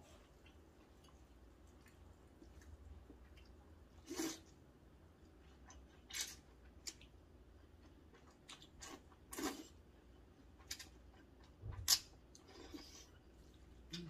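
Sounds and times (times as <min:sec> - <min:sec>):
faint chewing: 0:00.0 - 0:04.6.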